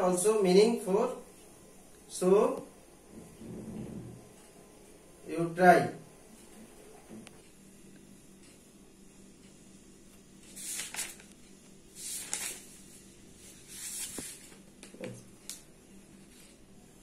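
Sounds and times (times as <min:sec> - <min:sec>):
faint steady hum: 0:00.0 - 0:17.0
soft rustling hisses: 0:10.4 - 0:14.7.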